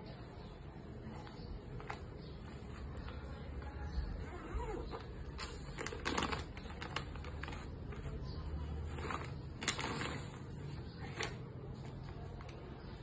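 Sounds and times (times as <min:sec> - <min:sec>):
plastic pouch crinkling: 0:04.9 - 0:08.1, 0:08.8 - 0:10.6.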